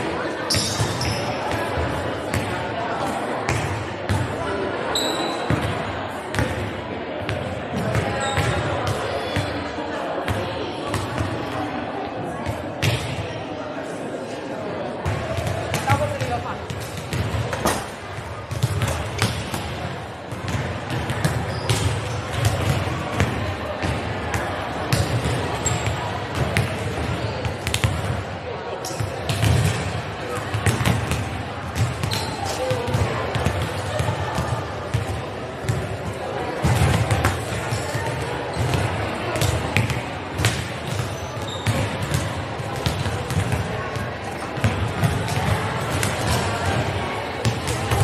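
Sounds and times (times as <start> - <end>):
murmur of voices: 0.0 - 48.0
volleyballs smacking and bouncing: 15.0 - 28.3, 28.9 - 48.0.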